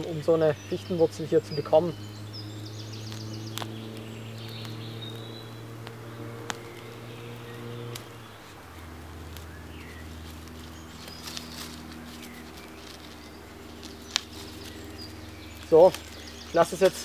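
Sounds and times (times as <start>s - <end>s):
low hum: 0.0s - 17.0s
root snapping: 2.8s - 8.3s, 9.2s - 17.0s
hands scraping soil: 3.0s - 17.0s.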